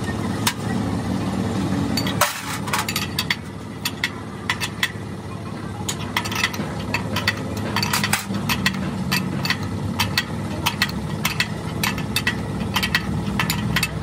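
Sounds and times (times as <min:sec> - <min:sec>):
steady low hum: 0:00.0 - 0:14.0
spanner clicking on a nut: 0:02.0 - 0:05.0, 0:05.8 - 0:14.0.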